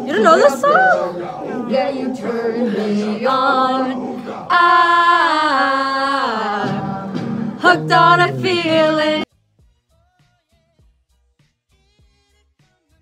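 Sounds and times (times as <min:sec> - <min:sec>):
woman singing: 0:00.0 - 0:01.1, 0:01.7 - 0:09.3.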